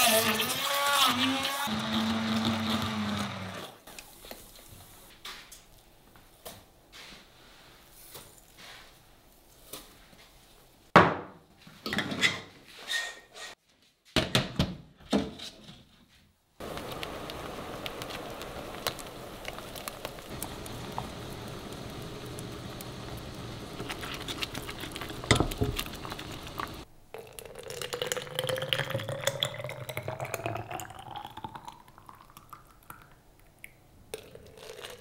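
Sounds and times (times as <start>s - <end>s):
fruit puree simmering with pops: 16.6s - 35.0s
spoon stirring against pan: 21.8s - 26.8s
saucepans knocking and clanking: 23.0s - 26.8s.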